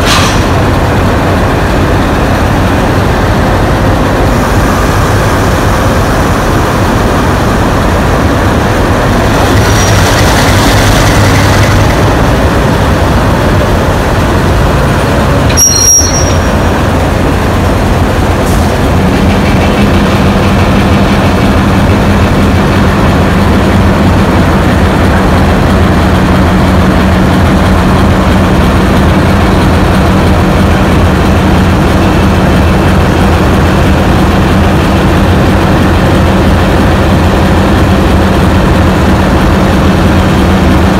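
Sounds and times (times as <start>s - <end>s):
diesel locomotive engines droning: 0.0s - 40.9s
sharp high squeal: 15.5s - 16.6s.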